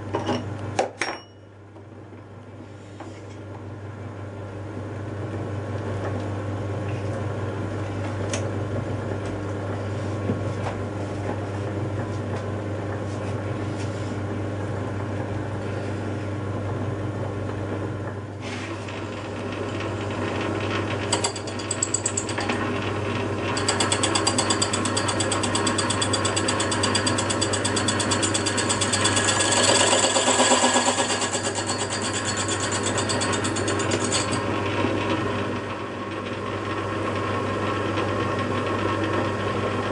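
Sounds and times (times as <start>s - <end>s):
lathe humming: 18.6s - 39.8s
cutting tool scraping metal: 21.1s - 22.6s, 23.5s - 34.5s.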